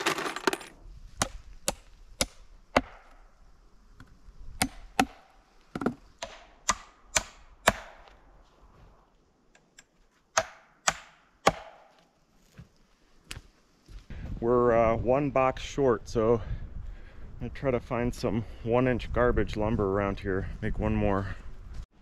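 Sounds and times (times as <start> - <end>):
hammer nailing wooden boards: 10.4 - 11.9.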